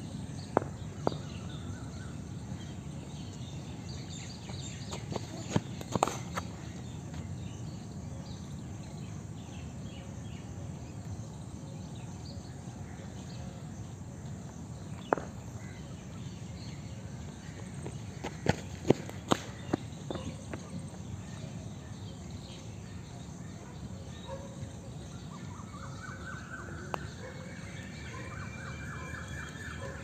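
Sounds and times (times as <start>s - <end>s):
cricket ball knocking off bat: 5.1s - 6.4s.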